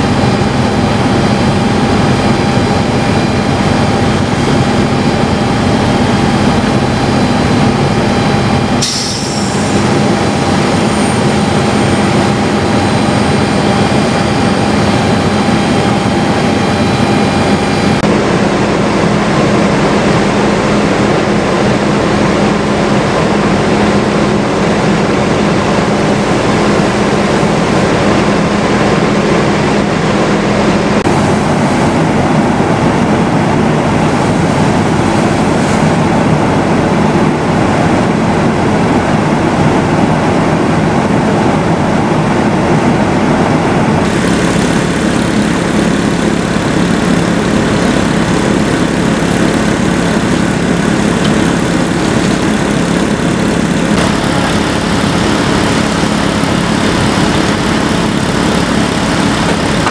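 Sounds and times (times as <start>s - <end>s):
fire engine pump droning: 0.0s - 59.9s
fire hose spraying water: 8.8s - 10.0s, 44.0s - 59.9s.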